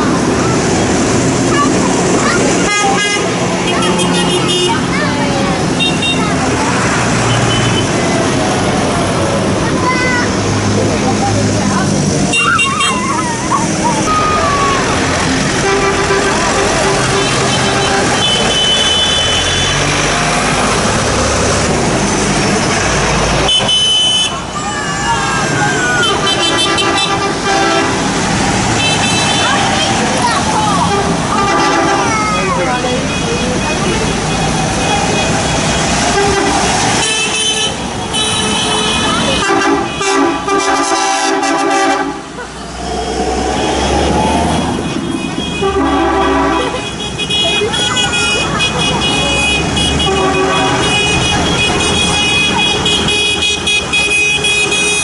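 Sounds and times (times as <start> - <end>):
tractor diesel engines: 0.0 - 55.0.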